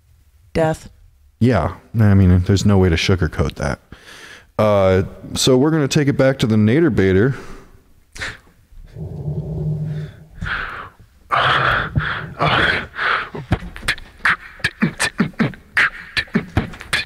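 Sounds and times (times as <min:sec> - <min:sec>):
man beatboxing: 0:11.8 - 0:17.0.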